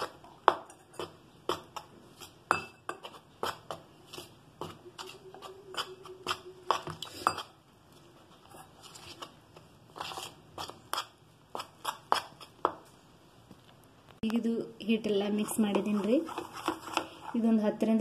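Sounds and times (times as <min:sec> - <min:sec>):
spoon scraping plastic bowl: 0:03.0 - 0:07.6, 0:08.3 - 0:12.5, 0:15.3 - 0:17.7.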